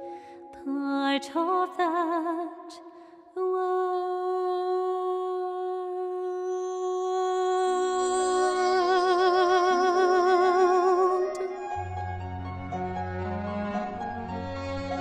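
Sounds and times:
woman singing a sustained note: 3.4s - 11.6s.

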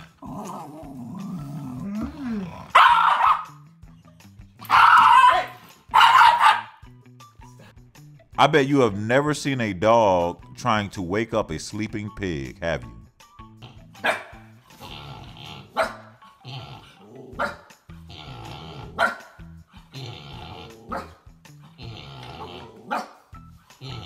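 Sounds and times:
background music: 0.0s - 24.0s
puppy barking in sharp yaps: 2.8s - 3.6s, 4.6s - 6.8s.

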